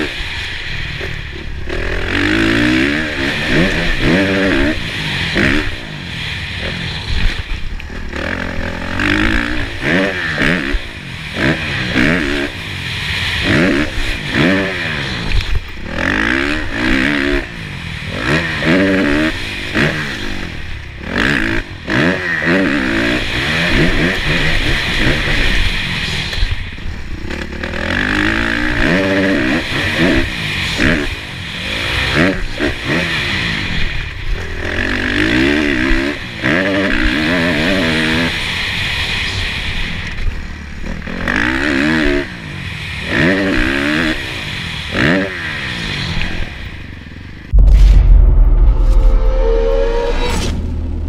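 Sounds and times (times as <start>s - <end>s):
motocross engine revving: 0.0s - 25.8s.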